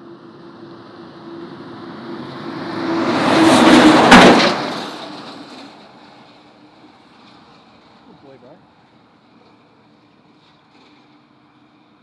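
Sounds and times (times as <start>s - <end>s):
vehicle passing by: 0.0s - 6.3s.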